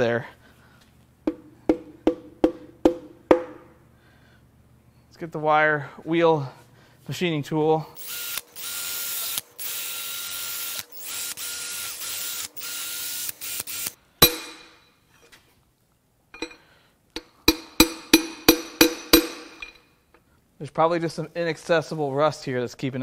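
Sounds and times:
sharp metallic knock: 1.3s - 3.7s, 14.2s - 14.8s, 17.2s - 19.8s
drill spinning wire wheel on metal: 8.0s - 14.0s
ringing metal hammer taps: 14.2s - 14.8s, 16.4s - 16.6s, 17.2s - 19.8s.

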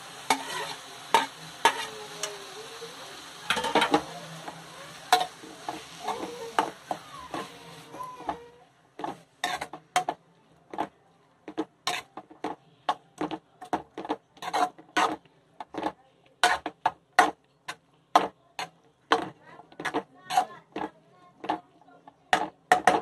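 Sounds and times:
spoon scraping a steel pan: 0.3s - 1.9s, 9.0s - 10.2s, 11.9s - 12.1s, 14.4s - 15.2s.

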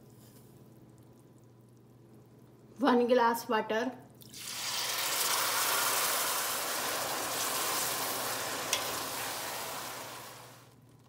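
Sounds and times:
water sizzling in hot oil: 4.3s - 10.7s.

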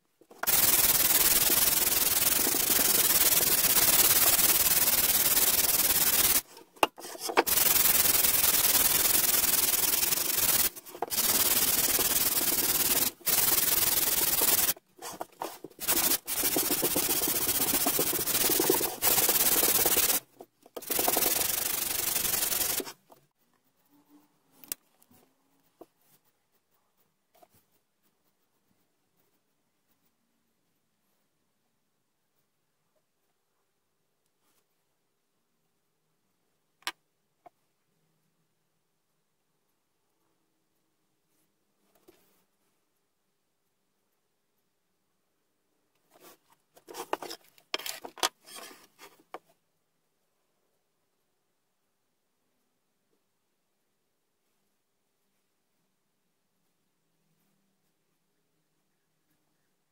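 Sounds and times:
sanding wood rasp: 0.4s - 22.9s.

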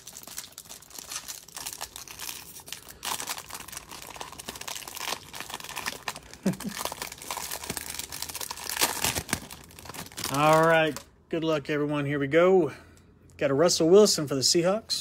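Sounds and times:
plastic wrapper crinkling and tearing: 0.0s - 11.1s.

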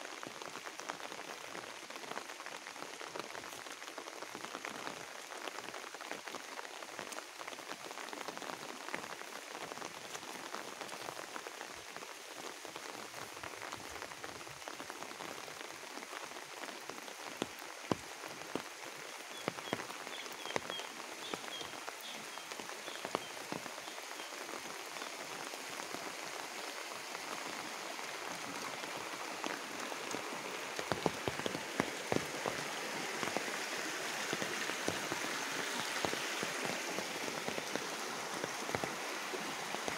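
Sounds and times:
steady rain on plants: 0.0s - 39.9s
stream rushing: 15.6s - 39.9s.

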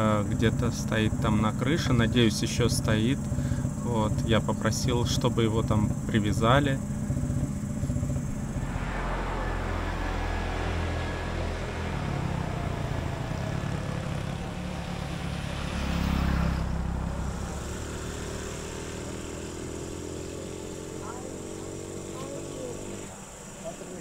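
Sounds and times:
highway traffic rushing: 0.0s - 24.0s
vehicle passing loudly: 5.4s - 24.0s.

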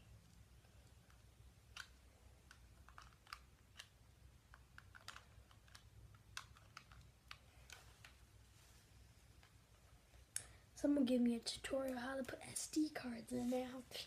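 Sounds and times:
small plastic clicks and taps: 1.0s - 8.2s.

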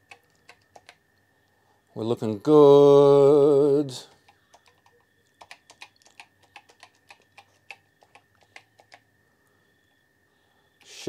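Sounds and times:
keyboard key clicks: 0.0s - 1.0s, 4.2s - 9.0s.

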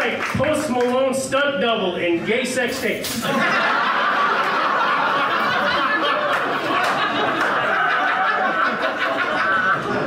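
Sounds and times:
audience laughing: 3.1s - 10.0s.

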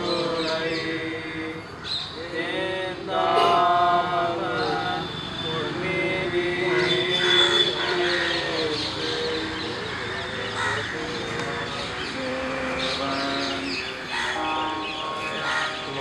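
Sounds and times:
crows cawing: 9.8s - 11.2s, 13.9s - 16.0s.

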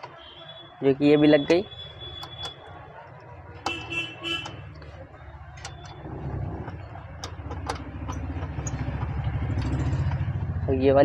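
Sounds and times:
sharp clicks and taps: 3.6s - 10.2s
low engine hum: 4.7s - 11.0s.

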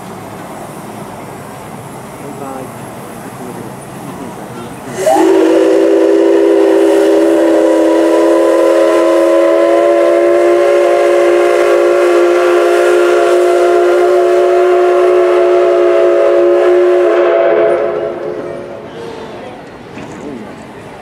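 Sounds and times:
steam whistle blast: 4.9s - 18.4s.

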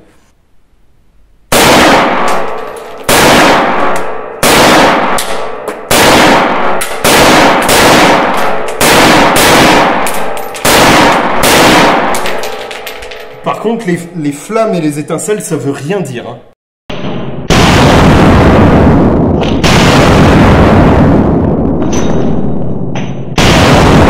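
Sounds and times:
rifle shots echoing indoors: 1.5s - 13.4s, 16.9s - 24.0s.

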